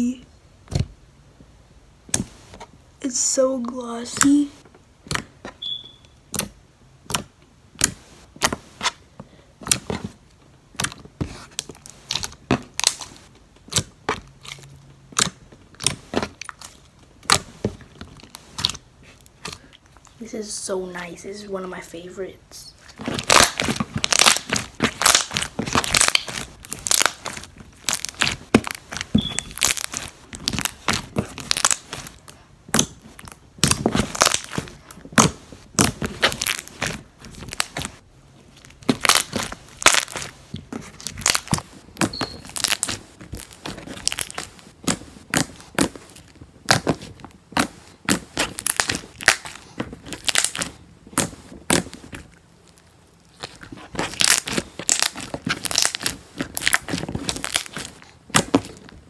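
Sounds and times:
slime clicking and popping: 0:05.0 - 0:08.6, 0:10.7 - 0:11.0, 0:11.6 - 0:19.6, 0:23.0 - 0:38.0, 0:38.6 - 0:59.0.

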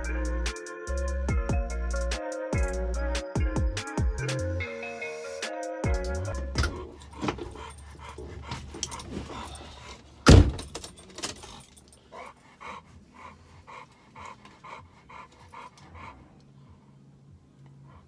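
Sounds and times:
dog panting: 0:06.2 - 0:10.2, 0:11.4 - 0:18.0
vehicle door shutting: 0:06.5 - 0:07.6, 0:10.2 - 0:11.5.

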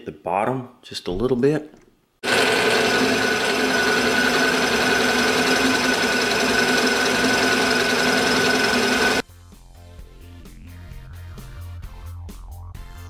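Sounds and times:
milling machine whining: 0:02.2 - 0:09.2.

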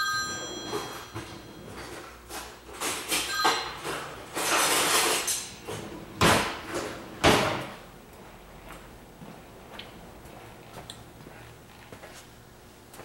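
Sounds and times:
sliding scraping noise: 0:04.3 - 0:06.1.

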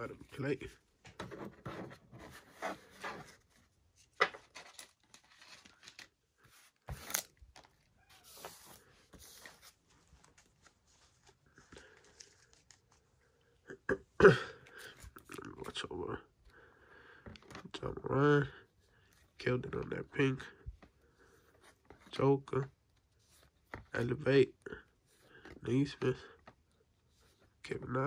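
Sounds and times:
trading cards shuffling: 0:01.7 - 0:13.1.

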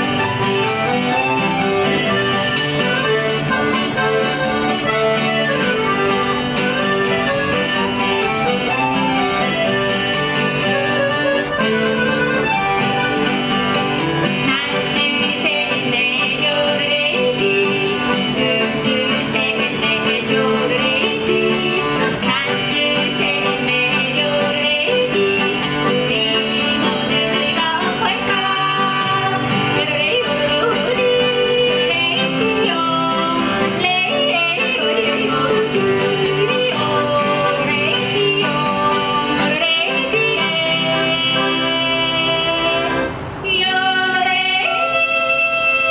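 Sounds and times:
accordion: 0:00.0 - 0:45.9
acoustic guitar: 0:00.0 - 0:45.9
women yodeling in duet: 0:14.4 - 0:45.9.

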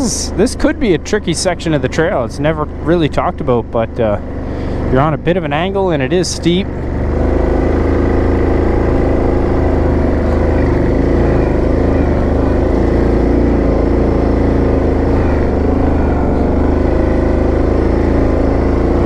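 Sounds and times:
atv engine running under load: 0:00.0 - 0:19.0.

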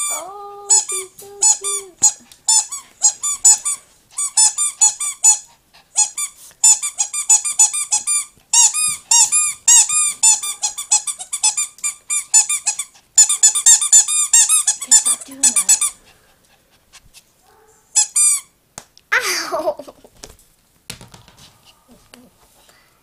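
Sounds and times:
puppy squeaking: 0:00.0 - 0:16.0, 0:17.5 - 0:18.5.

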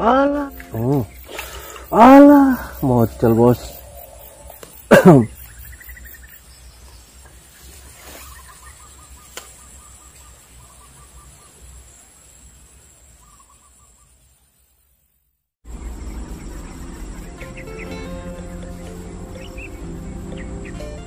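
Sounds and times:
background music: 0:16.7 - 0:21.0.

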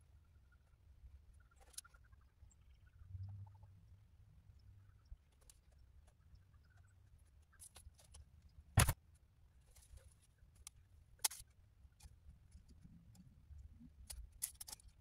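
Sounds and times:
seeds clicking and rustling: 0:14.0 - 0:15.0.

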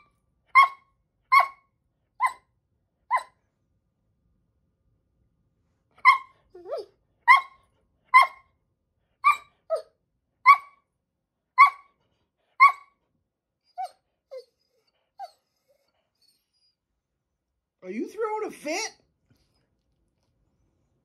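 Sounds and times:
dog barking: 0:00.0 - 0:02.4, 0:03.1 - 0:03.4, 0:06.0 - 0:08.5, 0:09.2 - 0:10.8, 0:11.6 - 0:12.0, 0:12.6 - 0:13.0
dog yipping: 0:00.0 - 0:02.5, 0:03.1 - 0:03.4, 0:06.0 - 0:08.5, 0:09.2 - 0:10.8, 0:11.6 - 0:12.0, 0:12.6 - 0:13.0, 0:13.6 - 0:16.8.

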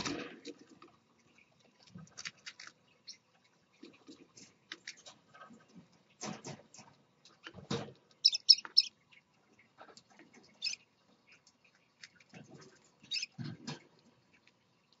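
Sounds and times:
birds pecking in seed dish: 0:00.0 - 0:15.0
bird squeaks: 0:08.2 - 0:08.9, 0:10.6 - 0:10.8, 0:13.1 - 0:13.4.

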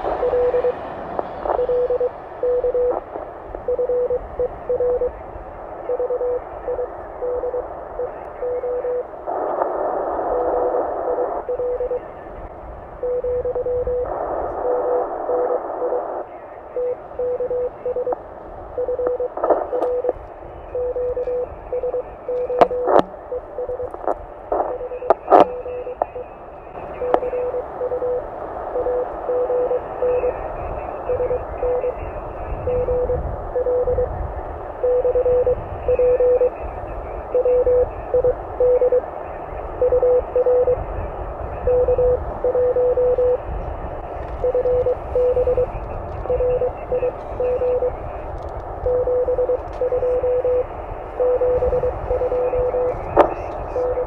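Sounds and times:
morse code tone: 0:00.0 - 0:05.2, 0:05.8 - 0:09.1, 0:10.1 - 0:12.2, 0:13.0 - 0:18.2, 0:18.8 - 0:34.2, 0:34.8 - 0:43.6, 0:44.2 - 0:54.0
receiver hiss: 0:00.0 - 0:54.0
sharp clicks: 0:19.0 - 0:20.2.

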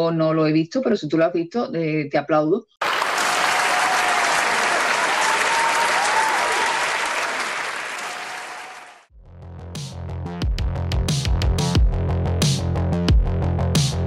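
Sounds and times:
audience clapping: 0:02.8 - 0:09.1
electronic music with a beat: 0:09.8 - 0:14.0.

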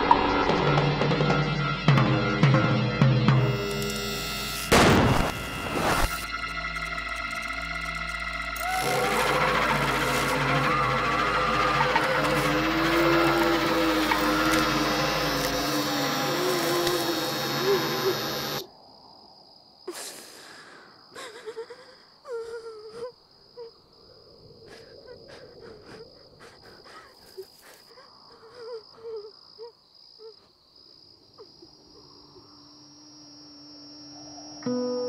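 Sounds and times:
loud noise: 0:03.4 - 0:06.5, 0:08.6 - 0:18.6
crickets trilling: 0:03.4 - 0:35.0.

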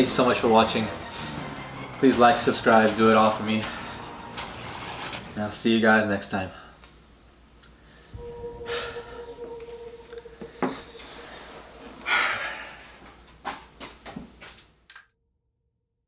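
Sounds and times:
chair scraping: 0:03.6 - 0:05.4.

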